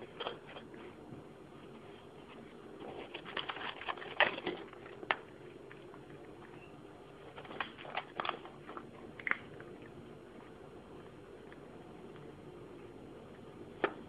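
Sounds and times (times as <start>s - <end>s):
cat crunching food: 2.8s - 6.6s, 7.2s - 12.3s.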